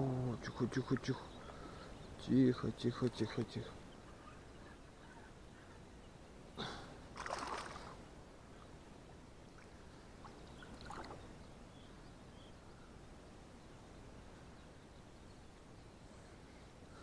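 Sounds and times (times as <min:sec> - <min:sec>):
fishing lure splashing in water: 0:07.2 - 0:07.9.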